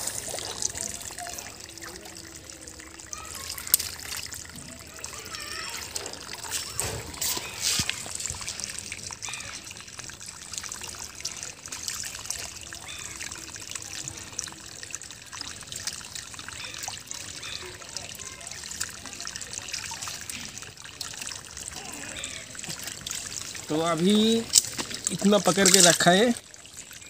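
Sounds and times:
pond water trickling: 0.0 - 27.0.

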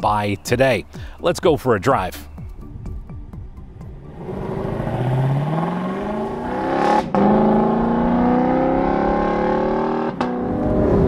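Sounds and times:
car engine accelerating: 3.6 - 11.0.

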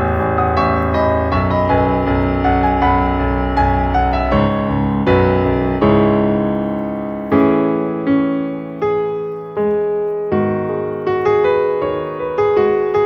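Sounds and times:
gentle piano piece: 0.0 - 13.0.

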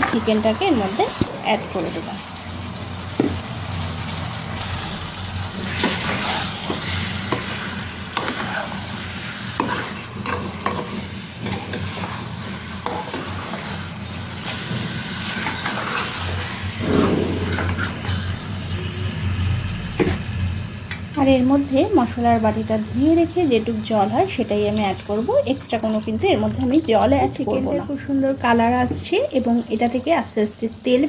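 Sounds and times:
chicken sizzling in hot oil: 0.0 - 27.2
metal spatula scraping pan: 5.6 - 13.8, 14.4 - 19.2.

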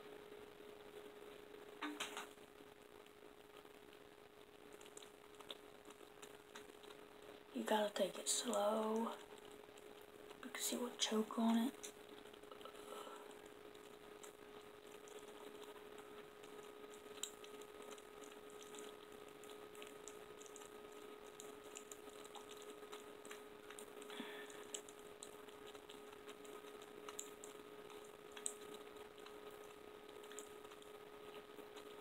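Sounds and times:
faint steady hum: 0.0 - 32.0
wet suckling clicks: 11.7 - 32.0.

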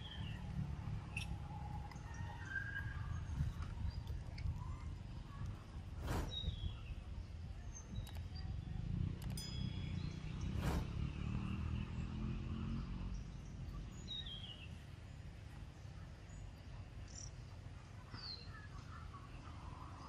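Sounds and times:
low rumble: 8.6 - 12.1.

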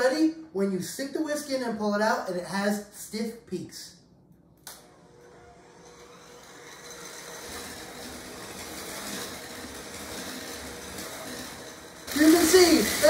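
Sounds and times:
electric hand mixer whisking: 5.4 - 13.0.

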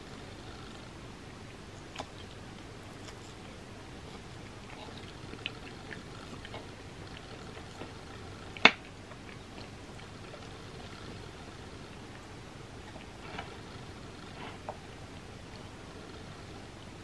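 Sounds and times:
soft chewing: 0.0 - 17.0.

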